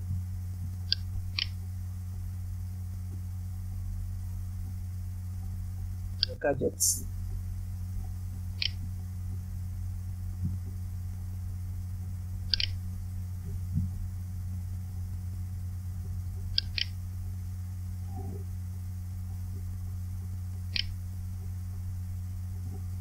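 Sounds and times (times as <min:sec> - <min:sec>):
low electrical hum: 0:00.0 - 0:23.0.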